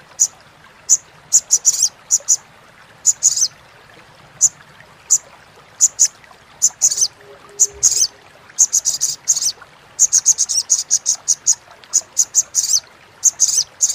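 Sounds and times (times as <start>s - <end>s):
sunbird chattering call: 5.8s - 13.9s.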